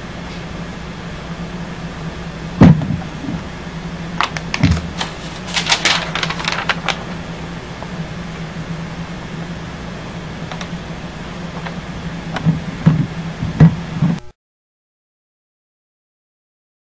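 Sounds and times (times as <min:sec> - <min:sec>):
steady low hum: 0:00.0 - 0:14.3
paper thumps: 0:04.2 - 0:07.3
paper crinkling and rustling: 0:04.2 - 0:07.4.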